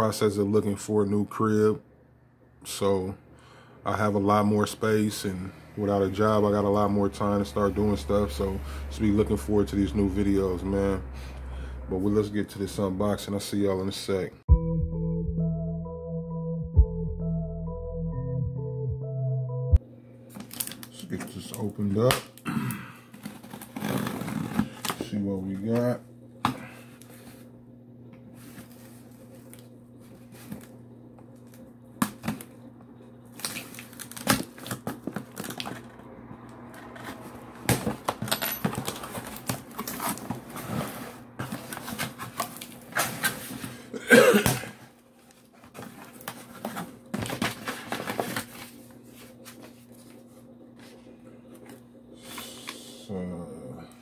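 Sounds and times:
steady low hum: 0.0s - 54.0s
packing tape peeled and torn: 33.4s - 35.8s.

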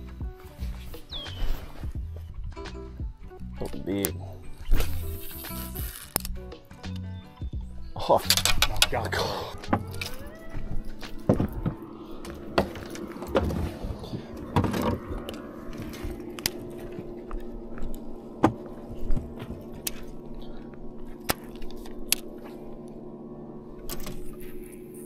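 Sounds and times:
steady low hum: 0.0s - 25.0s
fishing gear clicking and knocking: 4.8s - 6.4s, 8.2s - 10.3s.

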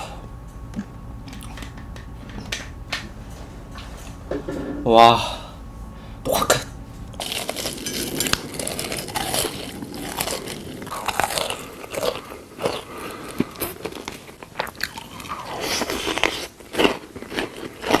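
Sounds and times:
person chewing crunchy food: 7.1s - 18.0s.

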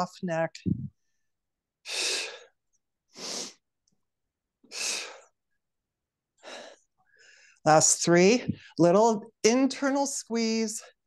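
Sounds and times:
woman breathing while exercising: 6.4s - 7.6s.

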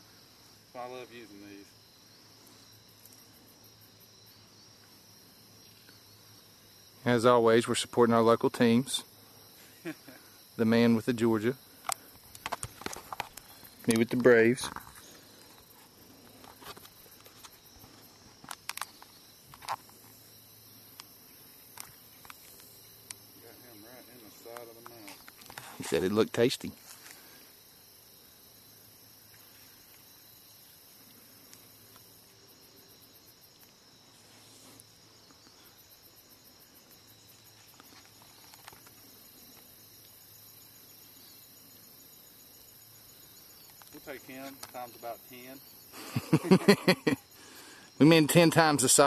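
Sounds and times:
insects chirring: 0.0s - 49.0s
camera handling knocks and rustles: 12.4s - 13.5s.

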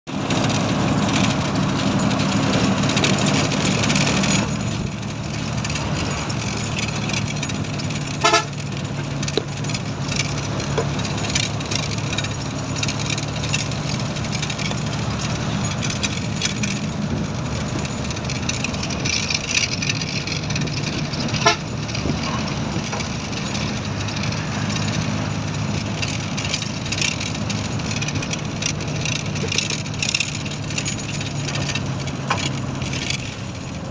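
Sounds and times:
road noise: 0.0s - 33.9s
vehicle engine drone: 0.1s - 33.9s
horn tooting: 8.1s - 8.7s, 21.3s - 21.8s.

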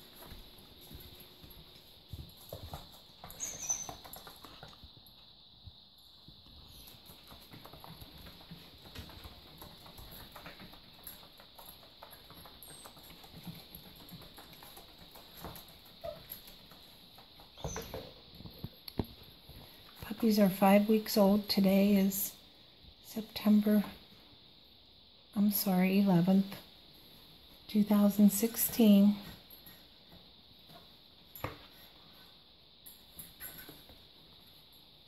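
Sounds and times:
paws pattering on foam mats: 0.0s - 5.2s, 6.2s - 19.9s.

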